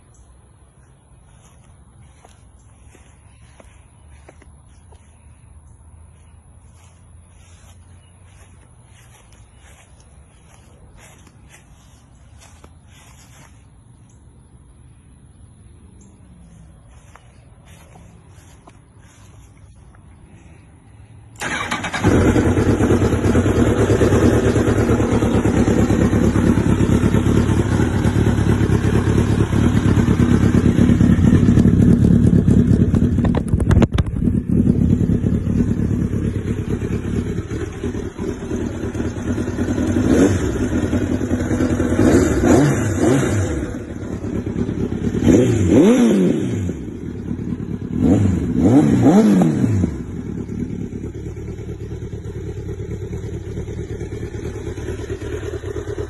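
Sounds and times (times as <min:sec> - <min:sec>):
motorcycle engine idling: 0:00.0 - 0:56.0
motorcycle throttle blips: 0:21.2 - 0:56.0.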